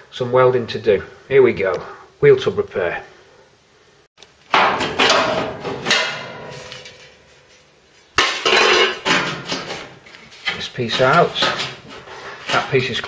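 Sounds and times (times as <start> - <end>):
steel panels knocking and clattering: 4.5 - 7.2, 8.2 - 13.0.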